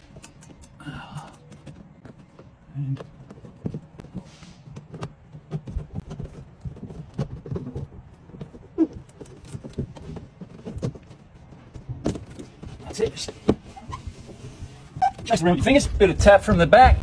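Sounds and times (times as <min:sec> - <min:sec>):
wire squeaking on rubber seal: 0:05.6 - 0:10.9, 0:13.6 - 0:15.4.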